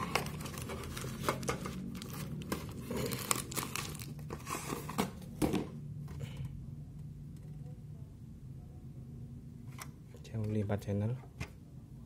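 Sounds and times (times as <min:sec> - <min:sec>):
plastic wrap crinkling: 0:00.0 - 0:04.8.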